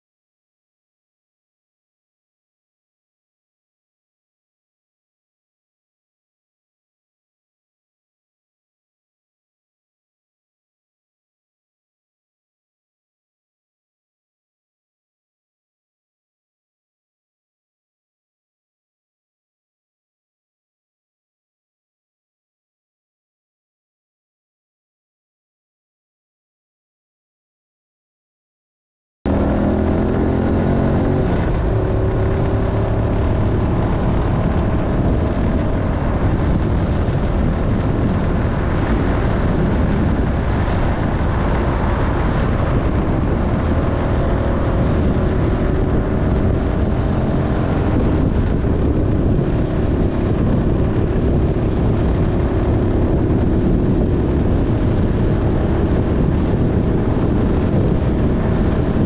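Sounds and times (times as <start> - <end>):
motorcycle engine running: 29.3 - 59.0
wind noise on microphone: 29.3 - 59.0.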